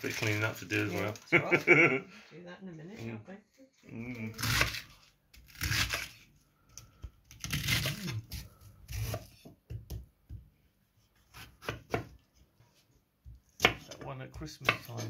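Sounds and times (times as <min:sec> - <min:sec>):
knife crunching through lettuce: 0:04.2 - 0:06.3, 0:07.4 - 0:09.2.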